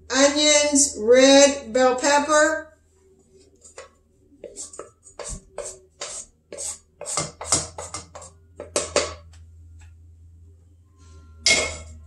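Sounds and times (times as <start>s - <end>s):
wooden spoon scraping saucepan: 3.5s - 9.0s
low steady hum: 7.6s - 12.0s.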